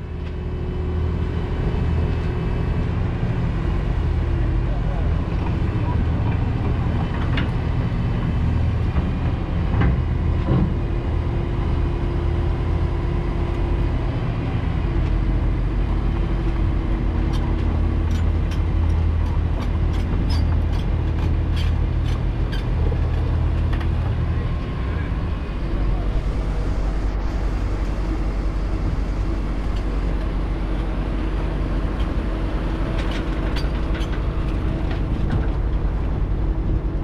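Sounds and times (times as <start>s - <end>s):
diesel engine running: 0.0s - 37.0s.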